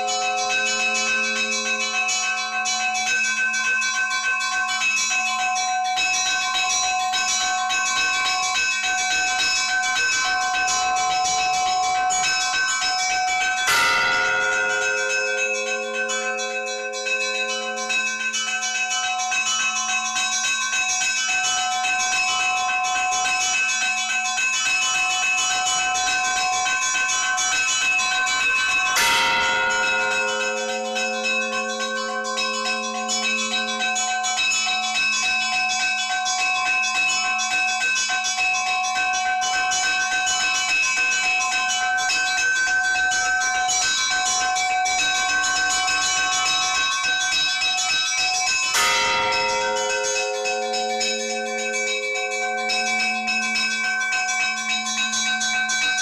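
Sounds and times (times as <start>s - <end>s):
heavy bell strikes: 0.0s - 2.3s, 13.7s - 18.5s, 29.0s - 34.4s, 48.7s - 55.6s
small church bells chiming: 0.0s - 56.0s.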